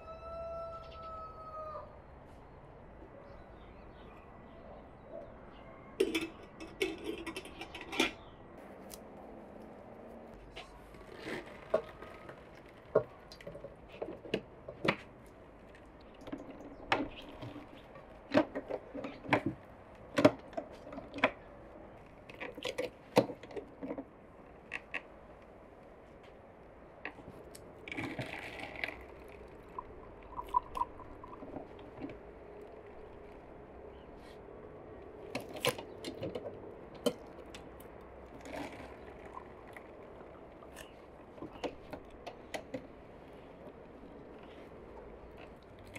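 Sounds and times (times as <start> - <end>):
juice trickling: 27.8 - 33.6, 37.1 - 41.9
juice dripping into glass: 28.2 - 31.8
juice pouring into glass: 29.7 - 31.5.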